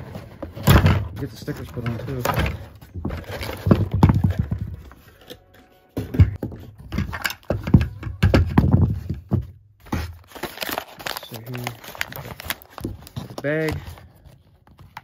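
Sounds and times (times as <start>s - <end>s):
cardboard insert being handled: 0.0s - 15.0s
plastic toy parts clicking and knocking: 6.3s - 9.4s.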